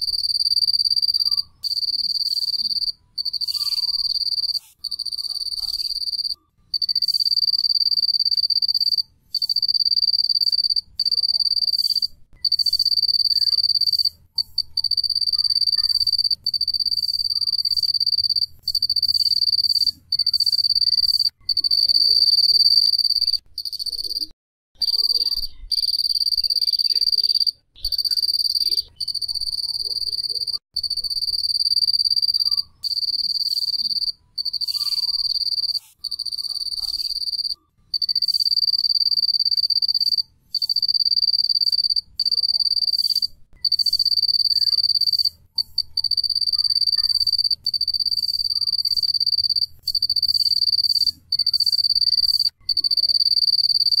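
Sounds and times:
cricket chirping: 0.0s - 54.0s.

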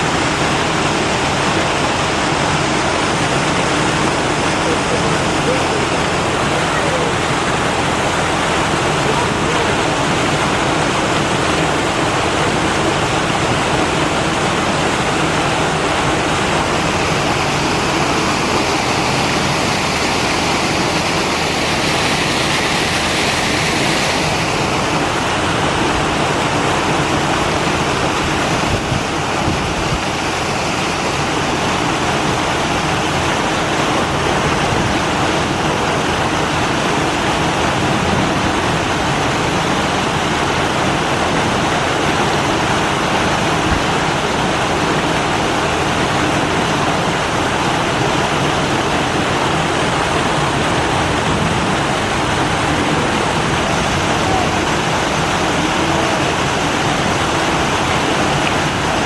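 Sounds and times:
running water rushing: 0.0s - 59.0s.

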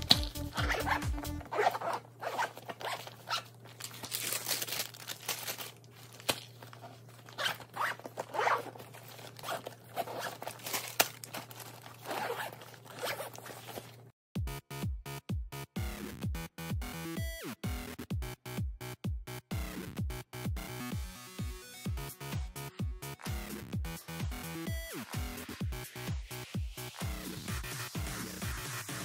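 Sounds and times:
zippers being pulled shut: 0.0s - 3.5s, 7.3s - 10.6s, 12.0s - 13.8s.

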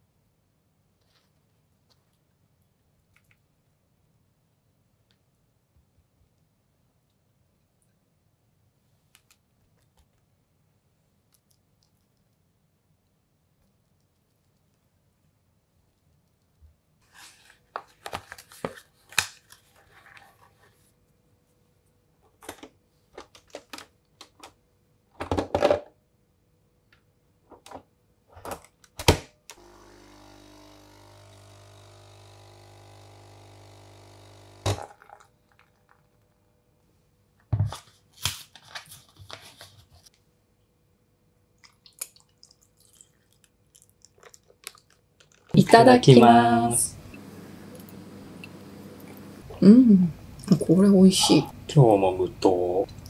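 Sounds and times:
coffee machine pump humming: 29.6s - 35.3s, 45.6s - 50.6s.

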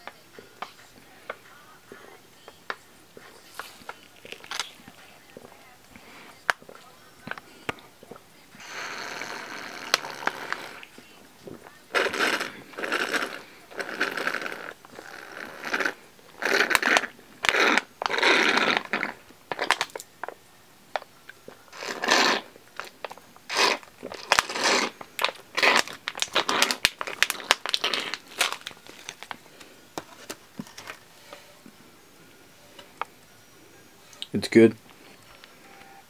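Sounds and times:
foil pouch crinkling: 3.4s - 5.2s, 11.7s - 20.4s, 21.5s - 31.4s.

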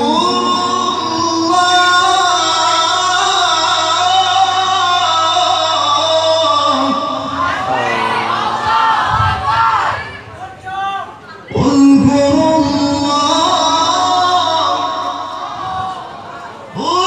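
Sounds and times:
man reciting through loudspeakers: 0.0s - 9.4s, 10.2s - 17.0s
audience voices calling out: 7.4s - 11.8s.

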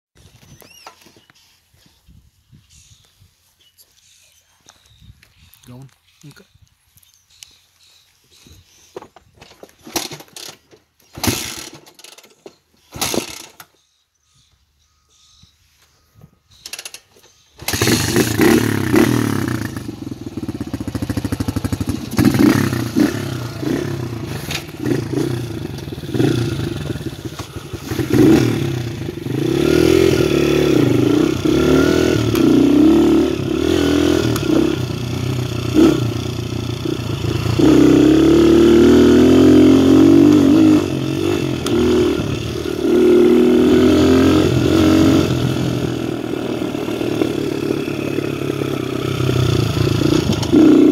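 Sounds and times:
knocks and rattles over bumps: 8.9s - 13.7s
dirt bike engine revving: 11.2s - 11.8s, 12.9s - 13.5s, 17.6s - 50.9s.

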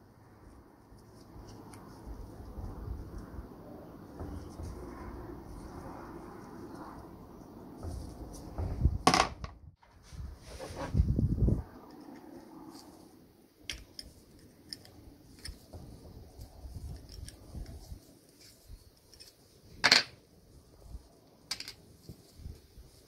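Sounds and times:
small parts and tools clicking: 13.6s - 15.7s, 16.8s - 20.1s.

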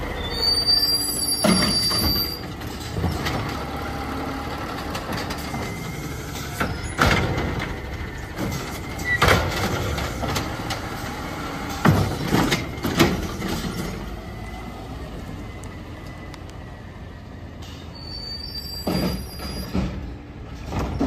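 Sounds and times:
metal clanks of cart and arm: 1.3s - 3.7s, 4.7s - 14.1s, 18.6s - 21.0s.

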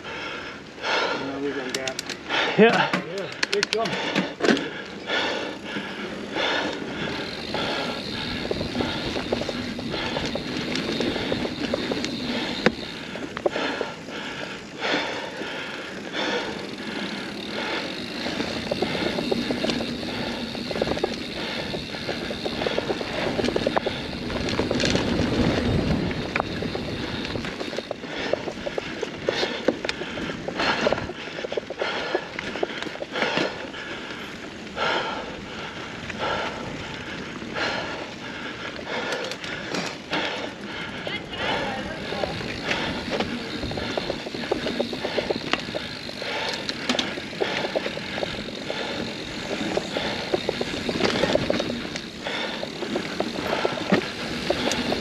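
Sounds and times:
bike chain and frame rattling: 0.0s - 55.0s
bike tyres on dirt trail: 0.0s - 55.0s.

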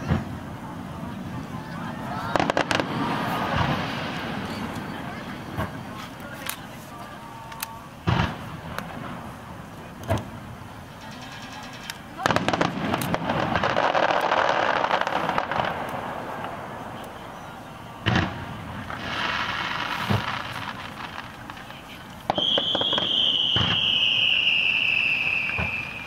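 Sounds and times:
firework booms: 0.0s - 6.0s, 8.0s - 26.0s
firework crackle: 0.0s - 26.0s
firework thumps: 8.0s - 9.3s, 10.0s - 10.4s, 18.0s - 24.0s, 25.4s - 26.0s
firework whistle: 22.3s - 26.0s.

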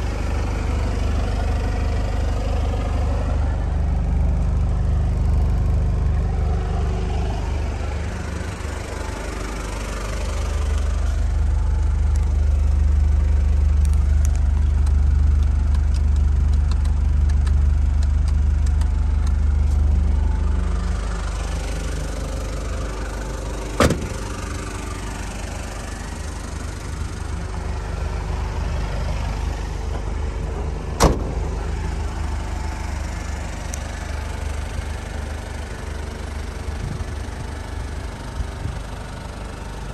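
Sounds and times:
diesel engine idling: 0.0s - 39.9s
sharp thumps: 23.8s - 24.3s, 31.0s - 31.6s.

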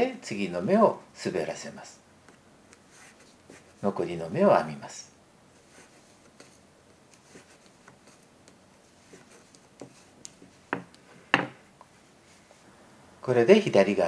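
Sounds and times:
knitting needles knocking: 9.8s - 11.6s.

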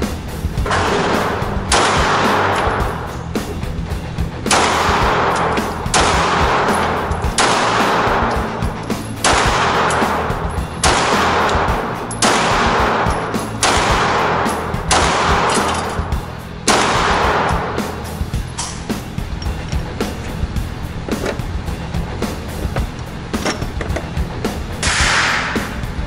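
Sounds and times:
pistol shots echoing indoors: 0.6s - 3.2s, 4.4s - 18.8s, 24.8s - 25.9s.

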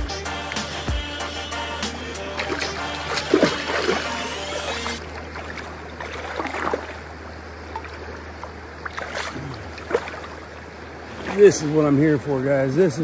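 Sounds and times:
river running over gravel: 0.4s - 13.0s
fish splashing in water: 2.2s - 11.8s.

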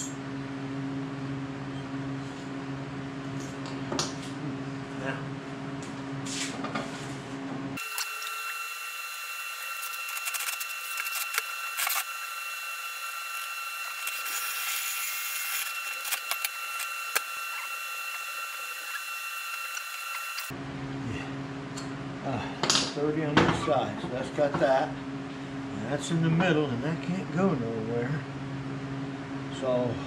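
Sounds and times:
high-pitched hum: 7.8s - 22.5s.

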